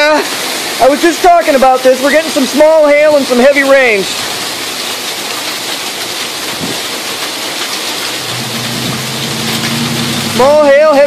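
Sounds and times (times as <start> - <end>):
heavy rain and hail: 0.0 - 11.0.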